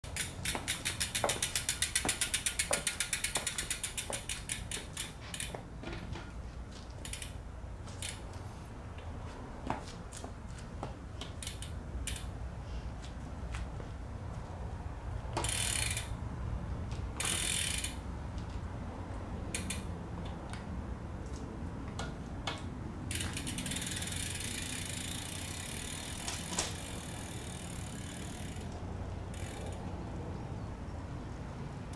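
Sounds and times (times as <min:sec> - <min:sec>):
bicycle freewheel clicking: 0:00.0 - 0:05.6, 0:07.0 - 0:08.3, 0:11.3 - 0:12.3, 0:15.4 - 0:16.2, 0:17.2 - 0:18.0, 0:19.5 - 0:19.9, 0:23.1 - 0:29.9.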